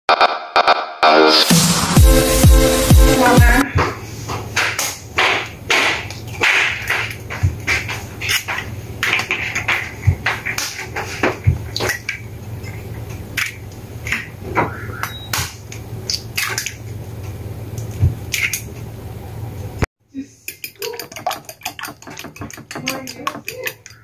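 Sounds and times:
eggs cracking on ceramic plate: 0:20.5 - 0:24.0.

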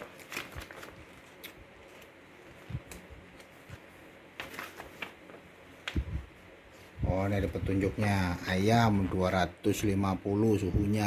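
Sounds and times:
paper pages flipping and rustling: 0:00.0 - 0:06.2.

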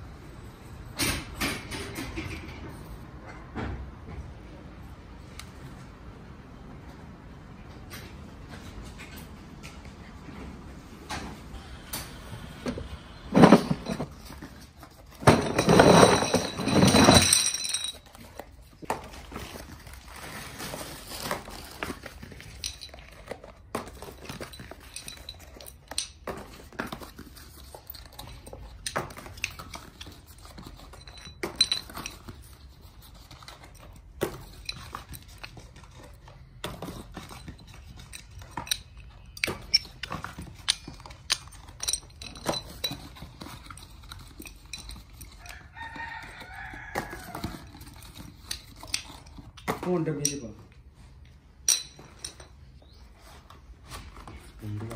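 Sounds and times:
metal parts clattering: 0:13.3 - 0:18.6, 0:19.4 - 0:26.7, 0:27.3 - 0:32.5, 0:36.9 - 0:45.4, 0:51.6 - 0:52.6
metal parts clinking together: 0:13.4 - 0:18.5, 0:22.4 - 0:26.4, 0:30.8 - 0:32.3, 0:37.3 - 0:45.4, 0:51.6 - 0:52.6.

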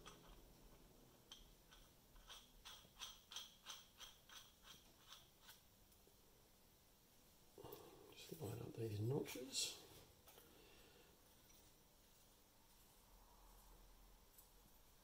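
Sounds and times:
metal parts tapping steel pipe: 0:01.3 - 0:05.6.

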